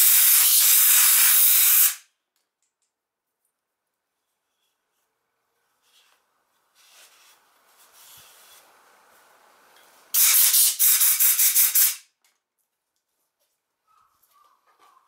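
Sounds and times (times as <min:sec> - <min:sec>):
compressed air hissing: 0:00.0 - 0:02.0, 0:10.2 - 0:12.0.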